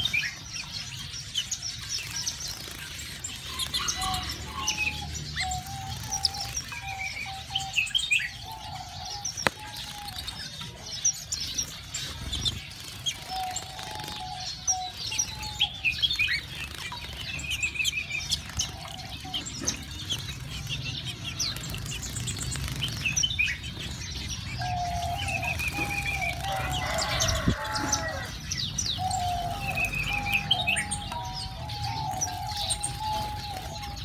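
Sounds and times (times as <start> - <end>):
small birds chirping and trilling: 0.0 - 34.0
wing flutters: 19.8 - 24.2.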